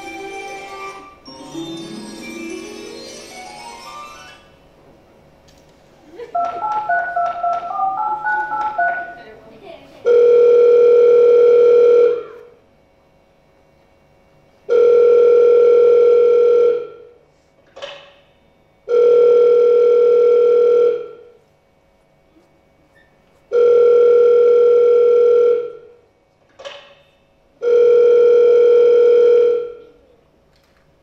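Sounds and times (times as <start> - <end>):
telephone ringing tone beeps: 10.1 - 12.2, 14.7 - 16.9, 18.9 - 21.2, 23.5 - 25.8, 27.6 - 29.8.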